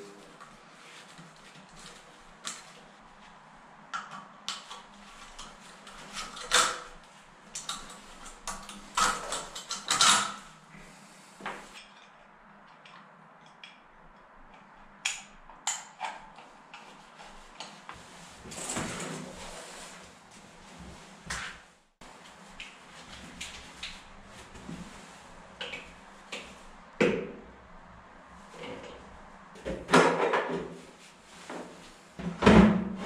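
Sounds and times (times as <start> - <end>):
cable rustling scrape: 17.0 - 26.6.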